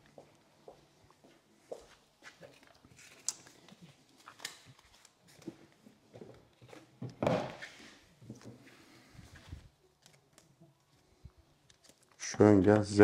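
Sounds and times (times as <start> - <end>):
light clicks and handling noises: 9.3 - 13.0.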